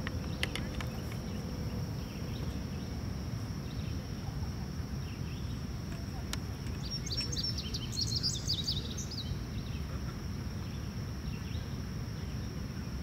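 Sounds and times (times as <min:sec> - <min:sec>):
faint bird chirps: 0:03.6 - 0:13.0.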